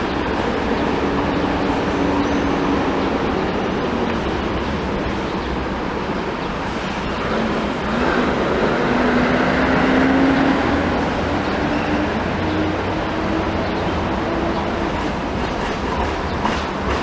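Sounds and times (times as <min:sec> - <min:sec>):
urban traffic noise: 0:00.0 - 0:17.0
vehicle passing: 0:07.2 - 0:14.6.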